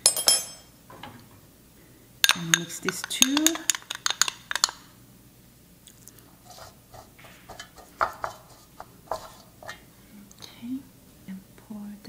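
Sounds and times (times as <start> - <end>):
spoon clinking against glass bowl: 0.0 - 0.7, 2.2 - 4.8
pastry brush tapping metal pan: 2.2 - 4.8, 6.5 - 9.8.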